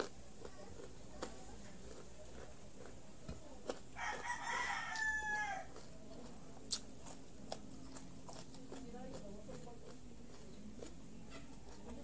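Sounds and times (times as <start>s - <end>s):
crunchy vegetables being chewed: 0.0s - 12.0s
rooster crowing: 4.0s - 5.8s.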